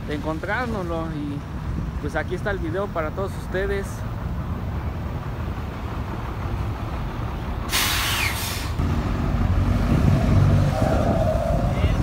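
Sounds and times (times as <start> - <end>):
bus engine running: 0.0 - 12.0
air brake hiss: 7.7 - 8.8.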